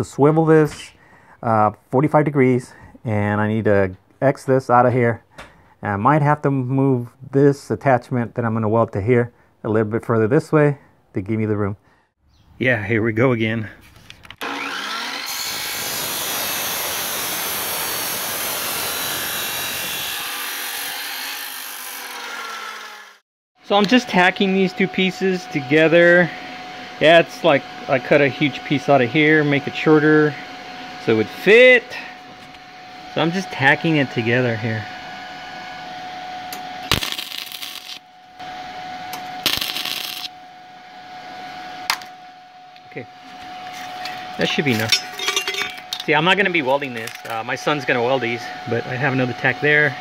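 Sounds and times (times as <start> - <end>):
chop saw grinding steel: 14.4 - 23.2
crackling welding arc: 36.8 - 38.0, 39.4 - 40.4.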